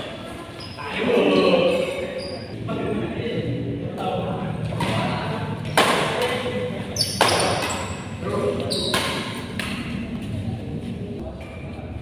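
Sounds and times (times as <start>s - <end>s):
shoes squeaking on court floor: 0.0s - 0.8s, 2.2s - 2.5s, 7.0s - 8.0s, 8.6s - 10.4s
racket hitting shuttlecock: 4.8s - 8.0s, 8.8s - 10.0s.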